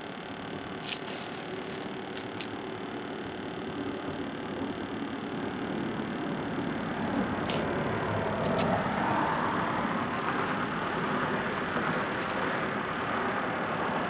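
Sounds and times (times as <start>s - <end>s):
road traffic passing: 5.4s - 14.0s.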